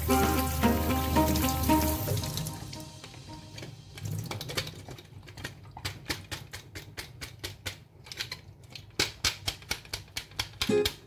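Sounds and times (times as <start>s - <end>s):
plucked guitar: 0.0s - 3.6s.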